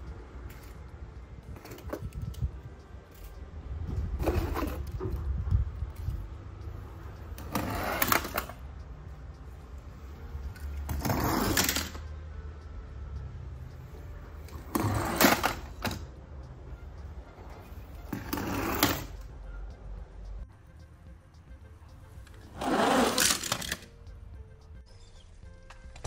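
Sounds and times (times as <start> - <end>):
toy cars rattling down board: 10.9 - 12.0, 14.7 - 16.0, 18.2 - 19.2, 22.5 - 23.9.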